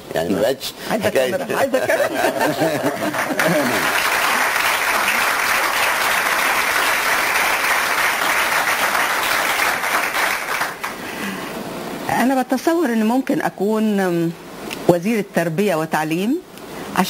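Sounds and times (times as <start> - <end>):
audience applauding: 2.0 - 11.2.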